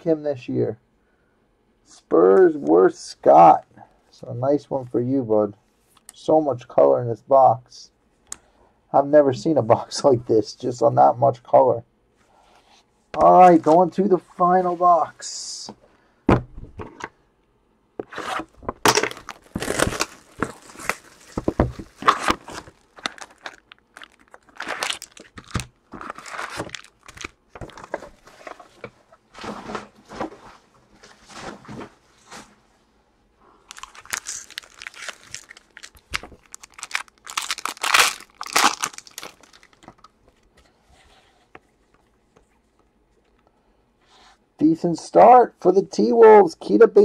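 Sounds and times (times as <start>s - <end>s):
card packs handled: 18.0s - 28.9s, 33.7s - 40.2s
plastic wrapping crinkling and tearing: 18.4s - 28.5s, 33.6s - 40.2s.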